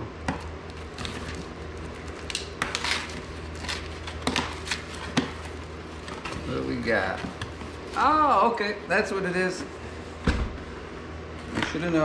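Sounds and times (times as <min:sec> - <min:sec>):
cardboard and tape scraping: 0:00.7 - 0:08.2.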